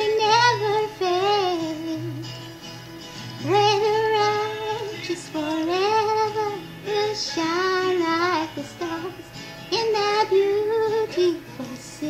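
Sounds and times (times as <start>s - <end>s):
soft backing music: 0.0s - 12.0s
high voice singing: 3.4s - 12.0s.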